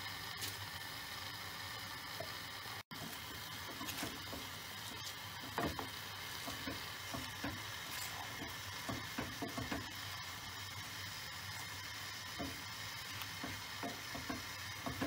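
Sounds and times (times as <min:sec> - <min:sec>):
greens sizzling: 0:00.0 - 0:15.0
leaves rustling: 0:02.9 - 0:08.5
wooden spoon knocking pot: 0:08.3 - 0:09.9, 0:13.4 - 0:15.0.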